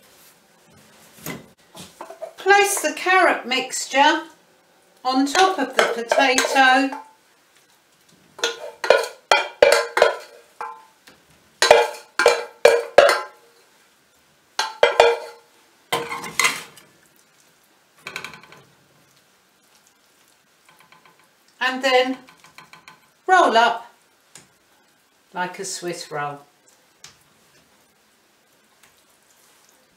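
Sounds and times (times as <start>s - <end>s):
wooden spoon knocking saucepan: 5.3s - 7.1s, 8.4s - 10.9s, 11.6s - 13.4s, 14.6s - 15.4s, 20.7s - 21.3s, 22.2s - 23.1s.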